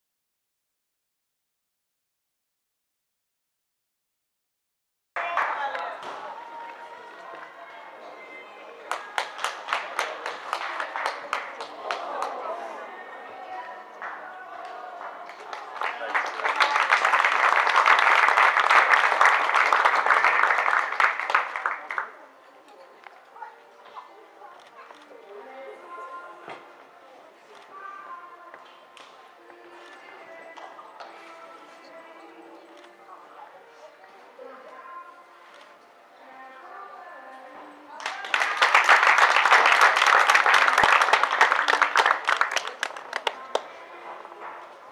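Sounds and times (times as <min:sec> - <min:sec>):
audience applauding: 0:05.2 - 0:06.2, 0:08.9 - 0:12.6, 0:15.0 - 0:22.1, 0:38.0 - 0:43.7.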